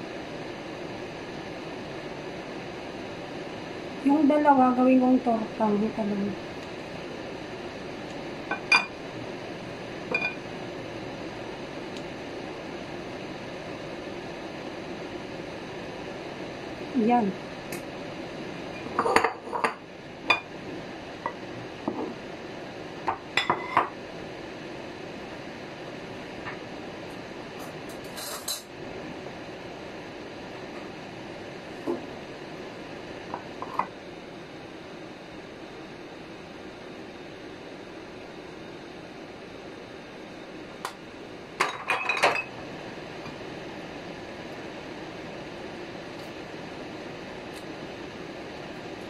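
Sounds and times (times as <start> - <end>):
steady background hum: 0.0 - 49.0
glass clinking on dish: 10.1 - 10.4, 41.6 - 42.5.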